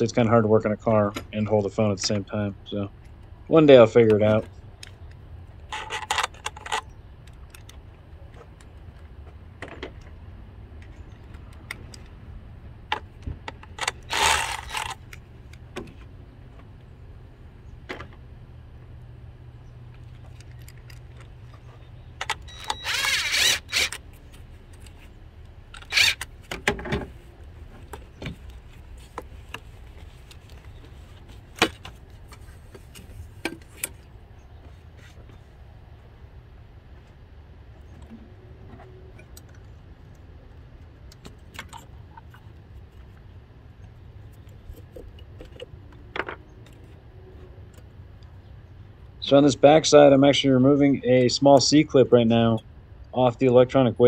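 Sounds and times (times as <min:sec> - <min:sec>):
steady low hum: 0:00.0 - 0:54.0
hand tools clicking and scraping metal: 0:13.5 - 0:16.1, 0:20.0 - 0:25.1, 0:25.7 - 0:26.5.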